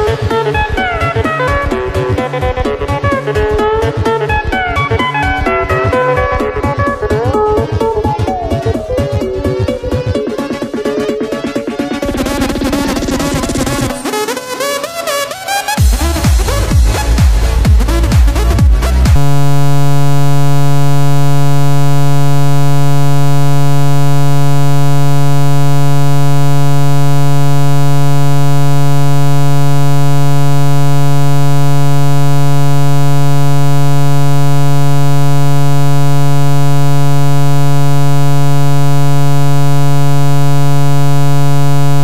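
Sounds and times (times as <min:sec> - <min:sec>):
low electronic buzzing tone: 0:12.0 - 0:14.0, 0:15.8 - 0:42.0.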